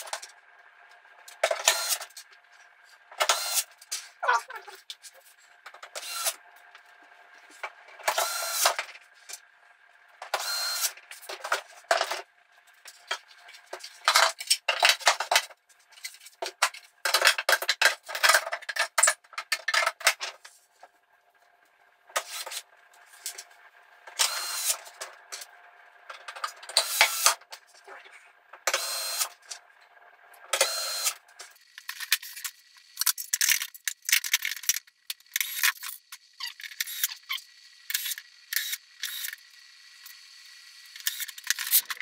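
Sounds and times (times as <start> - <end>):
electric screwdriver motor whining: 24.2 - 24.8, 28.7 - 29.3, 30.6 - 31.2, 34.6 - 40.2, 40.8 - 42.0.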